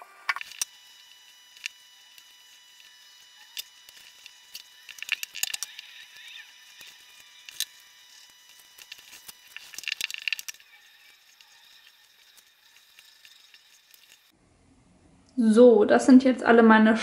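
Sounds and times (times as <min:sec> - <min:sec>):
baking paper crinkling: 0:02.8 - 0:14.3.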